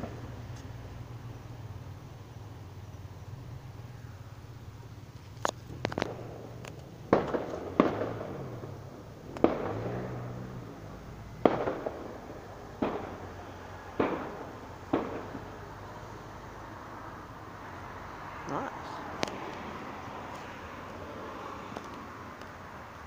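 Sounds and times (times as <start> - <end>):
fireworks bangs: 5.6 - 16.4.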